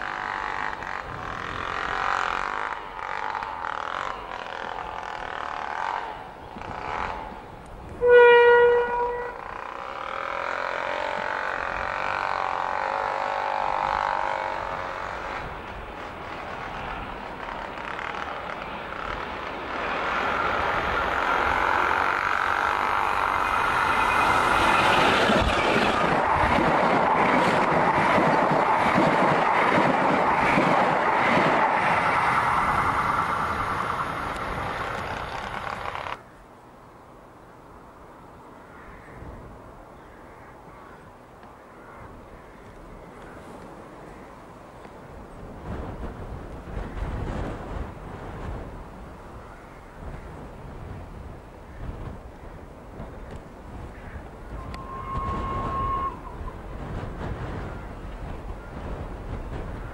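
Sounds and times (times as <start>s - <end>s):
diesel locomotive engine passing: 0.0s - 38.5s
locomotive horn blast: 8.0s - 15.2s, 54.5s - 56.5s
train wheels clattering on track: 8.6s - 36.2s.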